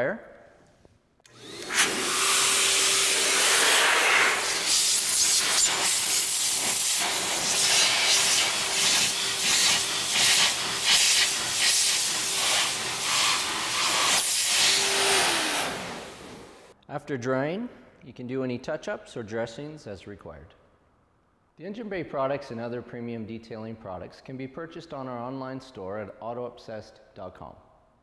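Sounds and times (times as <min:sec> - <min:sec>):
car dryer blowing air: 0:01.3 - 0:16.7.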